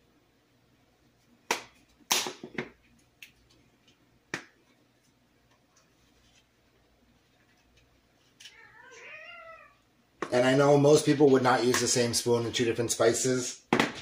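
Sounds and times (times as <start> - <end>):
cat meowing: 8.5 - 9.8.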